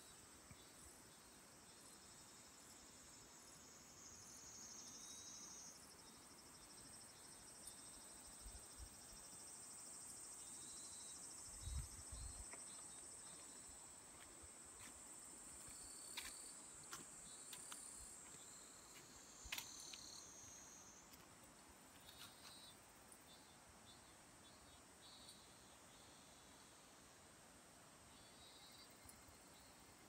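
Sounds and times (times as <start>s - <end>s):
insect chirps: 0.0s - 27.3s, 28.0s - 30.0s
insects trilling: 0.1s - 21.3s.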